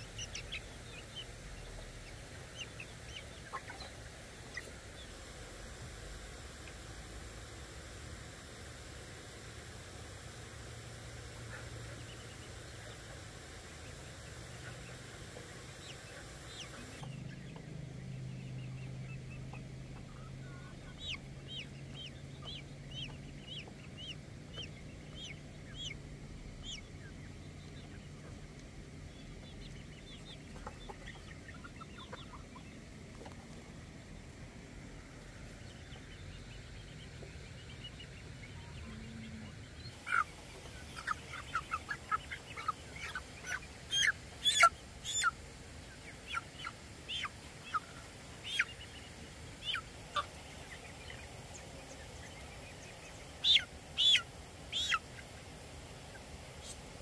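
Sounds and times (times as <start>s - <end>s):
chicks peeping and clucking: 0.0s - 57.0s
high falling chirps: 39.9s - 57.0s
chicken squawk: 40.0s - 45.4s, 46.0s - 49.0s, 49.6s - 52.0s, 53.3s - 55.5s.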